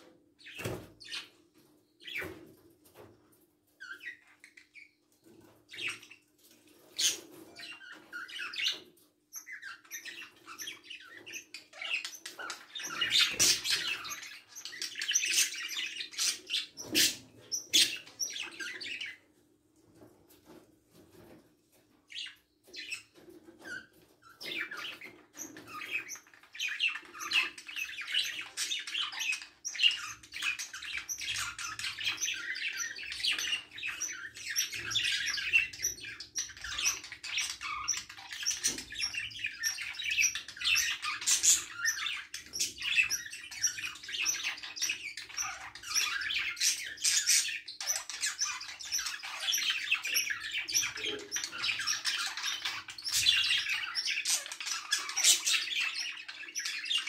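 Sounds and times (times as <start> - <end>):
budgerigars chattering: 24.4 - 57.0.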